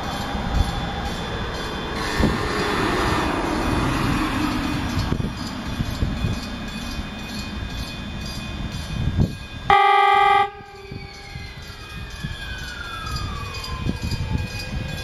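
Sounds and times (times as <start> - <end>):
train rumbling: 0.0 - 15.0
train horn blast: 2.0 - 2.9, 9.7 - 11.2.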